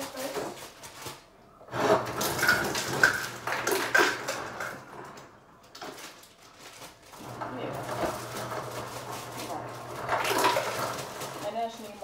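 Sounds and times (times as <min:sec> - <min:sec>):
ice cubes clattering into bottle: 0:01.8 - 0:04.8, 0:05.8 - 0:12.0.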